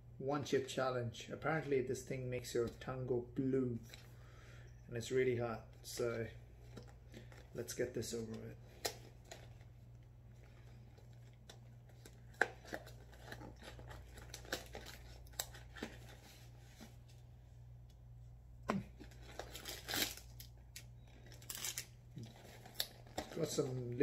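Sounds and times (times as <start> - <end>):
cardboard box crinkling and tearing: 19.0 - 20.4.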